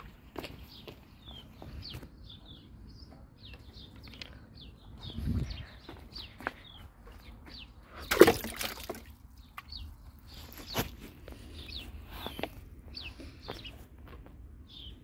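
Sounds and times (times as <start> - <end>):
small birds chirping: 0.0 - 15.0
rock splashing into water: 8.1 - 9.2.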